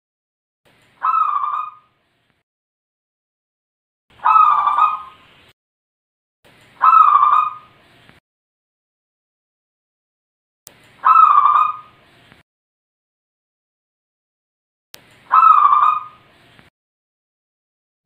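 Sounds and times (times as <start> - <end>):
dove cooing: 1.0 - 1.8, 4.2 - 5.2, 6.8 - 7.7, 11.0 - 11.9, 15.3 - 16.2.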